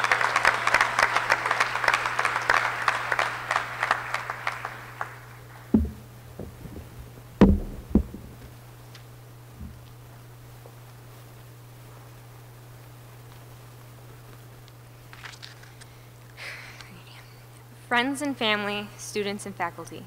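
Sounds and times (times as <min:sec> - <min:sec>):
audience applause: 0:00.0 - 0:05.7
dull low thumps: 0:05.7 - 0:08.6.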